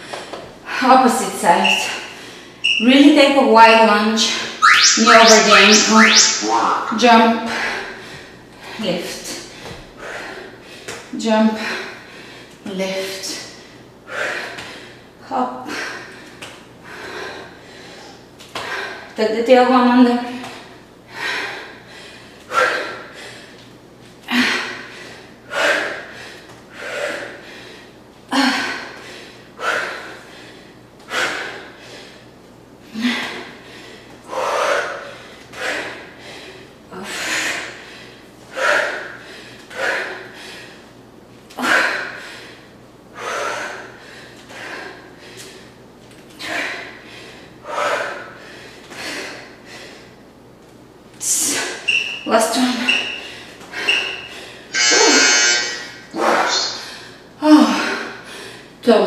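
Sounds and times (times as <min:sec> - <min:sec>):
woman breathing hard: 0:01.8 - 0:02.6, 0:07.4 - 0:12.6, 0:13.2 - 0:19.2, 0:20.4 - 0:41.0, 0:41.6 - 0:50.2, 0:52.6 - 0:54.8, 0:55.6 - 0:58.8.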